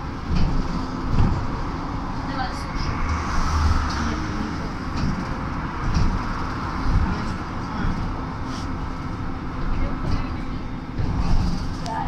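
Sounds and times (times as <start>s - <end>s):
road and tyre rumble: 0.0s - 12.0s.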